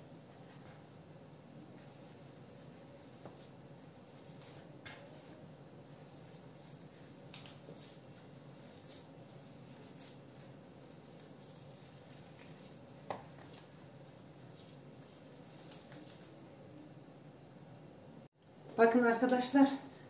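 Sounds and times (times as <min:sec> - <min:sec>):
hands kneading dough: 0:01.5 - 0:16.5.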